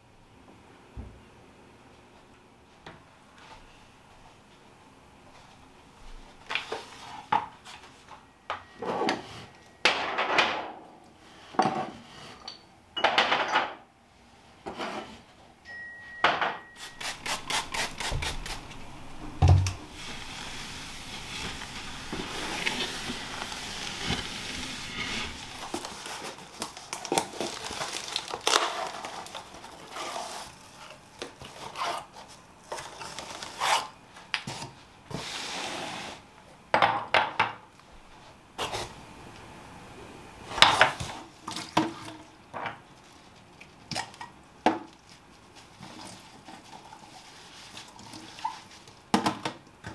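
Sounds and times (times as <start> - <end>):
cloth rubbing on shelf: 19.8 - 25.8.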